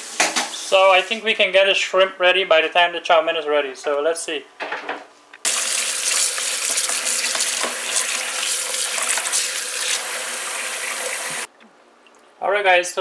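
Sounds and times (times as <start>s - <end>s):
hands rubbing shrimp in water: 5.5s - 11.4s
tap water running into bowl: 5.5s - 11.5s.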